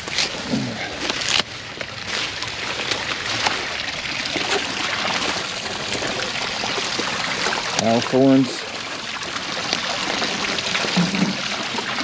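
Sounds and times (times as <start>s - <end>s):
water running and splashing: 0.0s - 12.0s
dry brush crackling: 4.3s - 8.0s.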